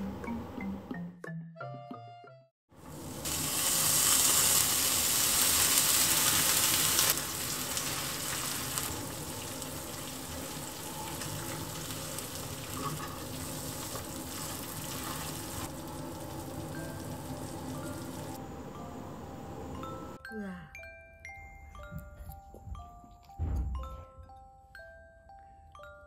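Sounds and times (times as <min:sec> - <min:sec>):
cheese sizzling in frying pan: 0:02.8 - 0:18.4.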